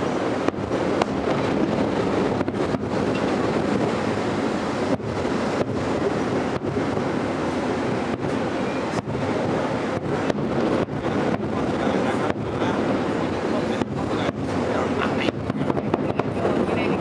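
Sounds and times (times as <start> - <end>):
sharp firework bang: 0.0 - 4.2
distant fireworks rumble: 0.0 - 17.0.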